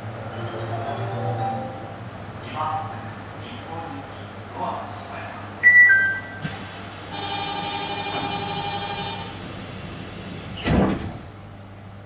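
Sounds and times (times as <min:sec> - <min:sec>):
electronic chime chord: 0:05.6 - 0:06.5.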